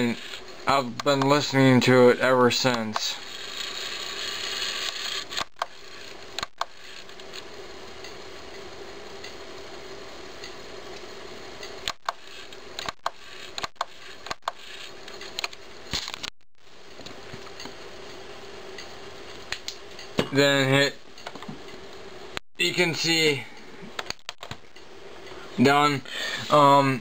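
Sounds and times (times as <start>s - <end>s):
cd drive whirring: 0.0s - 2.0s, 2.6s - 20.3s, 23.2s - 26.8s
sharp clicks: 12.8s - 14.6s, 24.0s - 24.9s.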